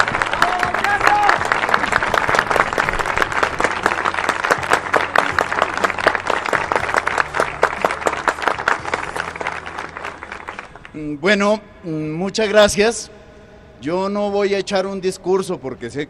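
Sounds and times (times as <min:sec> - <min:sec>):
crowd applauding: 0:00.0 - 0:11.0.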